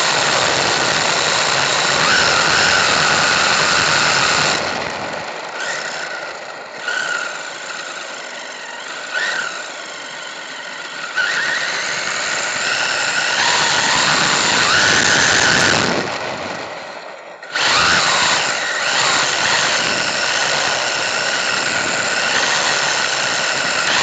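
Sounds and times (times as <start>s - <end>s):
electric motor whining: 0.0s - 24.0s.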